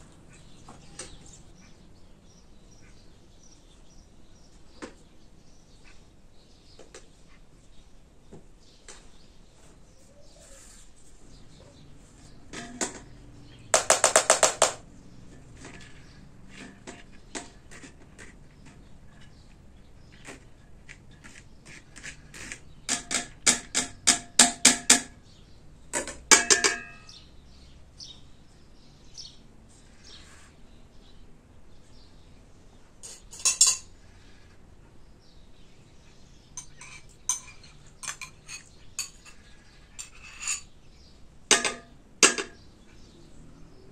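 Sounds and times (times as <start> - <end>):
taps and clinks on steel pot: 22.9 - 25.2, 25.9 - 27.1, 33.0 - 33.9, 36.6 - 39.4, 41.5 - 42.6
metallic ring: 26.4 - 27.2.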